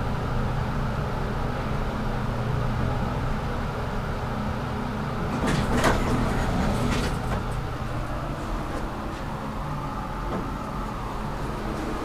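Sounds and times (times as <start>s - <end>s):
elevator low hum: 0.0s - 12.0s
elevator clunks and clicks: 5.2s - 11.1s.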